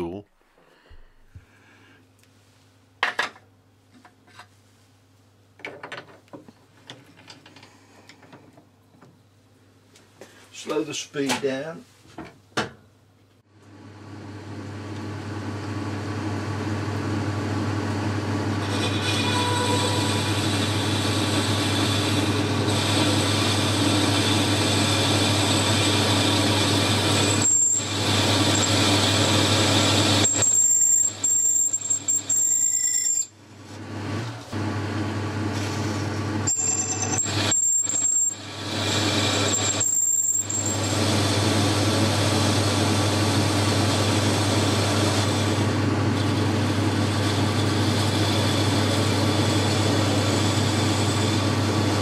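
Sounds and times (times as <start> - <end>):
lathe motor humming: 17.9 - 30.5, 38.4 - 52.0
high-pitched squeal of cutting tool: 18.6 - 20.8, 23.0 - 33.4, 36.5 - 41.0.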